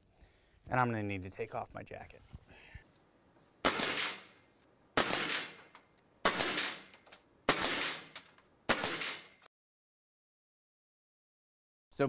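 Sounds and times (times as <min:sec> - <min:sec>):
air rifle shots: 0:03.6 - 0:04.4, 0:05.0 - 0:09.5.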